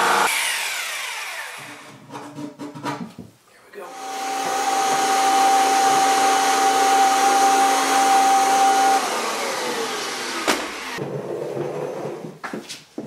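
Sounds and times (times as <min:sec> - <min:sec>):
vacuum cleaner motor whine: 0:00.0 - 0:01.9, 0:03.9 - 0:11.0.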